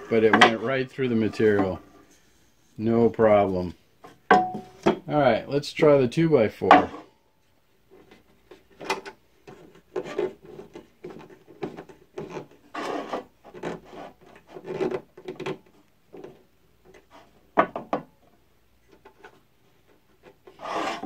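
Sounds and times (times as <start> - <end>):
wood scraping on metal table: 0.0 - 2.4, 11.8 - 15.0, 20.5 - 21.0
wood knocking on metal: 4.1 - 5.0.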